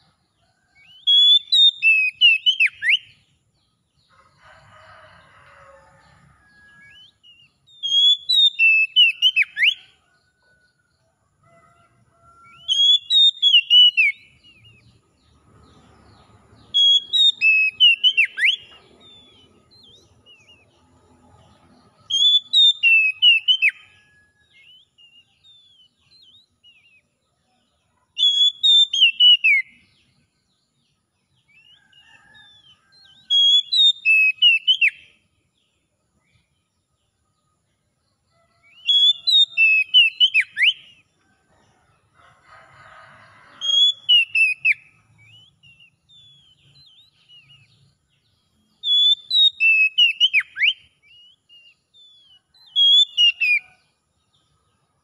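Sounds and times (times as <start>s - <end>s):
bird whistled song: 0.7s - 3.3s, 6.6s - 10.0s, 12.4s - 15.0s, 16.6s - 20.7s, 22.0s - 27.1s, 28.2s - 30.0s, 31.5s - 35.2s, 38.6s - 41.1s, 43.5s - 47.9s, 48.8s - 53.8s.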